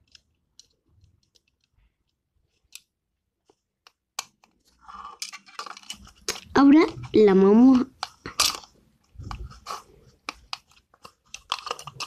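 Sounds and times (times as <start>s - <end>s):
plastic toy pieces clicking: 0.0s - 1.8s, 5.1s - 7.0s, 7.7s - 9.5s, 10.2s - 12.0s.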